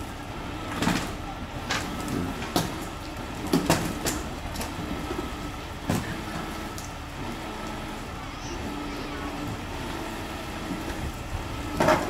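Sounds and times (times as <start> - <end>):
truck engine and winch running: 0.0 - 12.0.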